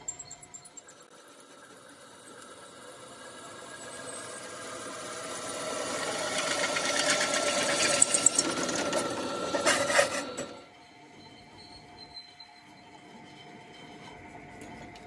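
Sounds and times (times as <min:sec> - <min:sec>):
drill bit cutting steel: 0:00.0 - 0:02.0, 0:02.6 - 0:12.8.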